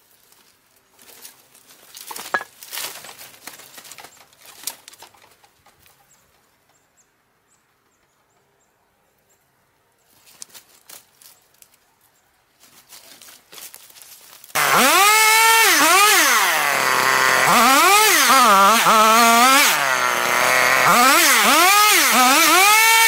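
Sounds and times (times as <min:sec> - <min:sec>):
branches rustling and cracking: 0:00.0 - 0:06.5, 0:10.1 - 0:14.7.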